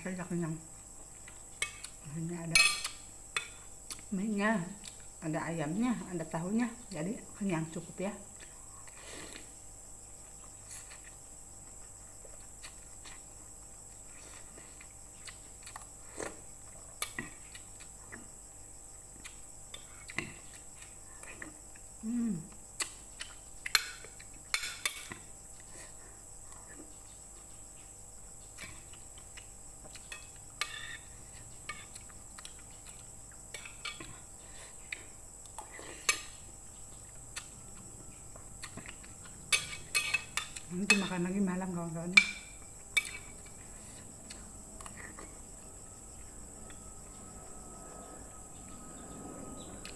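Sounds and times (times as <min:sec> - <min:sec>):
chewing: 0:10.1 - 0:18.4, 0:26.5 - 0:41.0, 0:42.5 - 0:47.4.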